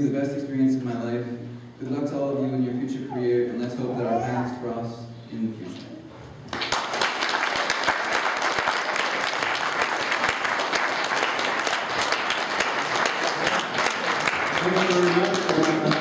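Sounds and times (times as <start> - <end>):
audience applauding: 6.5 - 16.0.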